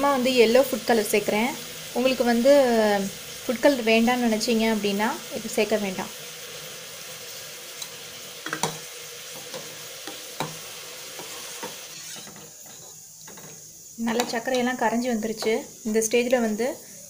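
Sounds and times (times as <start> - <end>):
steady hiss: 0.0 - 17.0
ladle scraping metal pot: 11.2 - 13.6.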